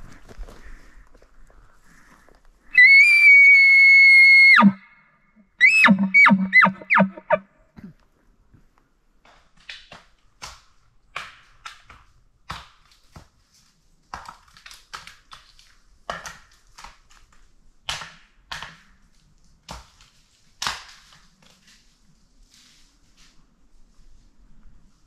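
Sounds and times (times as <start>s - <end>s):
footsteps crunching on dry ground: 0.0s - 2.6s.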